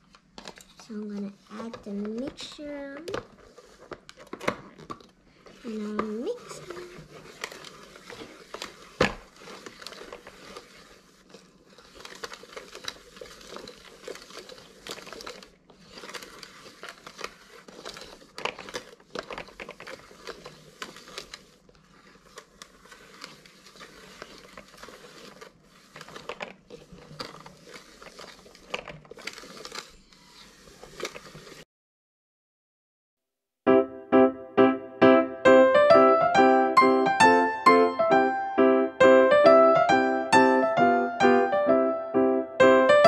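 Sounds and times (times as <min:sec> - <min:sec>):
toy mixer crinkly rasping and clicking: 0:00.0 - 0:31.6.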